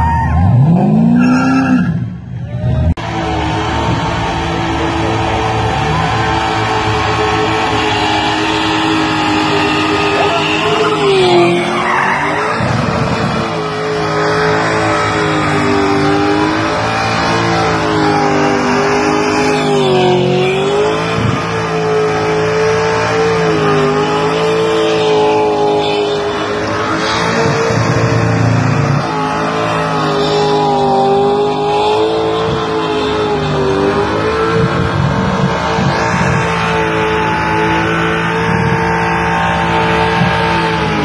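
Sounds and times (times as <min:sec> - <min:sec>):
car engine revving high: 0:00.0 - 0:41.0
tyres squealing: 0:05.0 - 0:34.6.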